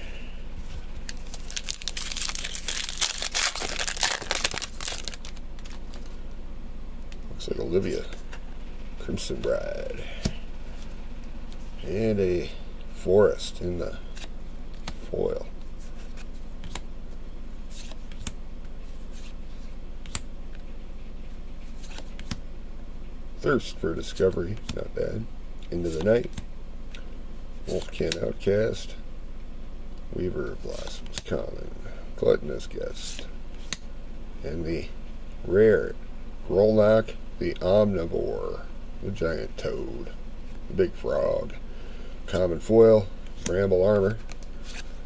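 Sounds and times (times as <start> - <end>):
low electrical hum: 0.0 - 45.0
trading cards clicking and rustling: 1.0 - 6.2
foil wrapper tearing and crinkling: 1.1 - 6.0.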